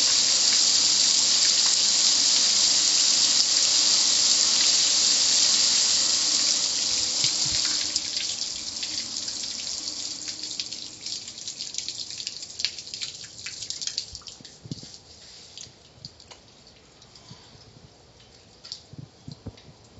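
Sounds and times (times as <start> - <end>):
car wash water spray hissing: 0.0 - 14.1
water dripping: 0.0 - 17.3, 18.2 - 19.6.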